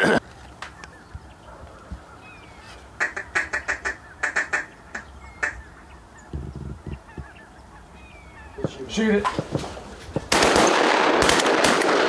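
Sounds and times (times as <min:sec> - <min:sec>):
duck quacking: 0:03.0 - 0:05.7.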